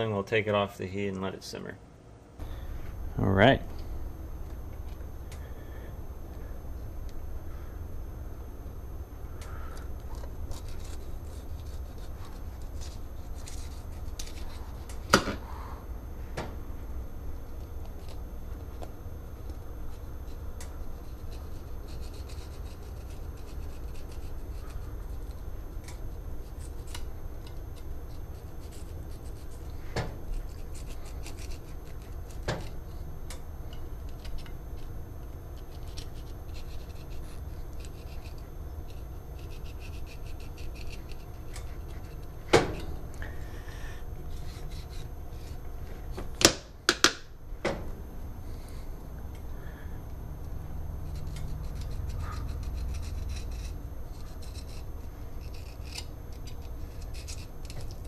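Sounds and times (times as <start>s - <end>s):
low steady hum: 0.0s - 58.0s
knife scraping and slicing fish: 19.9s - 33.1s, 51.0s - 58.0s.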